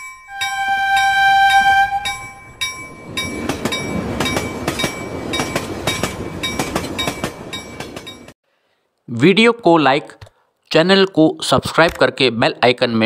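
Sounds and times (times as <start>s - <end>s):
train horn: 0.3s - 2.4s
train wheels clattering over rail joints: 2.6s - 8.3s.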